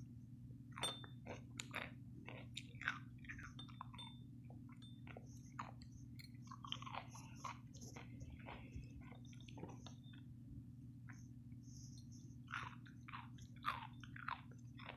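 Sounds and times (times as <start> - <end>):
crunchy chewing: 0.7 - 10.4, 11.0 - 14.9
metal fork clinking on bowl: 0.8 - 1.2, 3.3 - 4.2.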